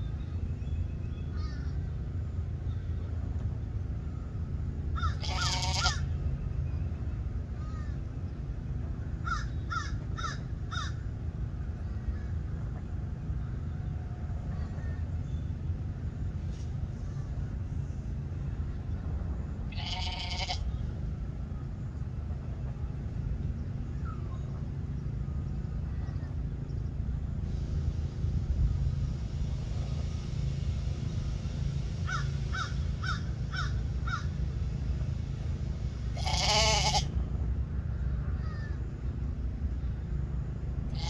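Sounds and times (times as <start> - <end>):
steady low rumble: 0.0 - 41.0
harsh animal calls: 5.0 - 6.1, 19.7 - 20.6, 36.2 - 37.1.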